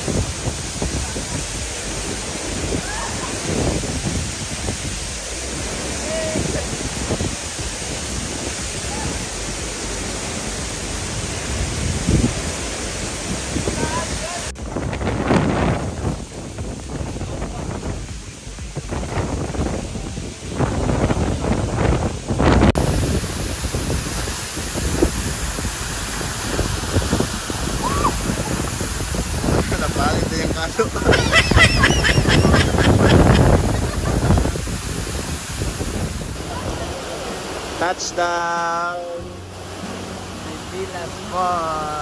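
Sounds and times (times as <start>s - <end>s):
steady rushing noise: 0.0s - 42.0s.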